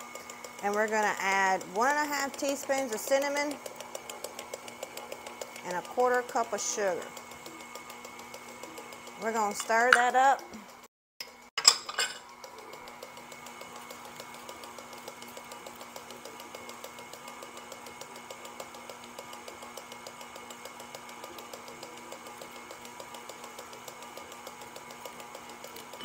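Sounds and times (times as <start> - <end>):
mixer clicking: 0.0 - 26.0
stand mixer motor humming: 0.0 - 26.0.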